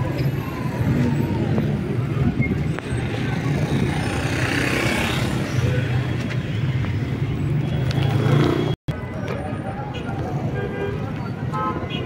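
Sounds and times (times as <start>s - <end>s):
city street traffic: 0.0s - 12.0s.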